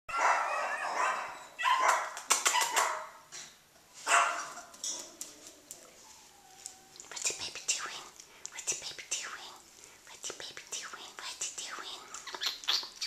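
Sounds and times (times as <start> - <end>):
puppy barking: 0.1 - 3.2, 4.0 - 4.7.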